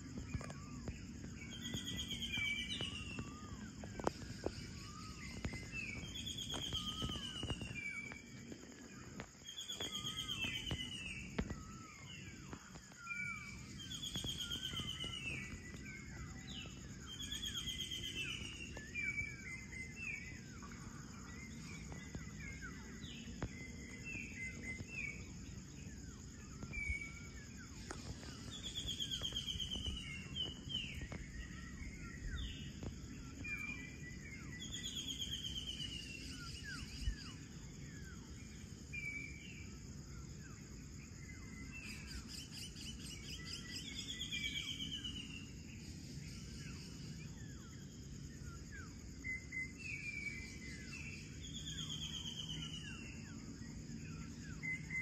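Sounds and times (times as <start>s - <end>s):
high insect drone: 0.0s - 55.0s
birds chirping and calling: 0.2s - 37.2s.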